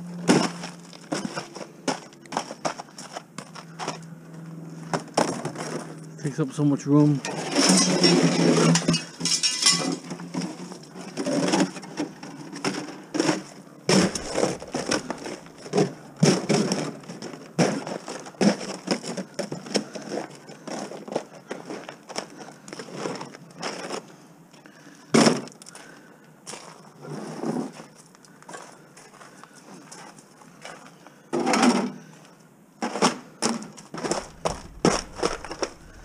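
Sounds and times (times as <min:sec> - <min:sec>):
aluminium duct crinkling: 0:07.2 - 0:24.2, 0:33.6 - 0:36.0.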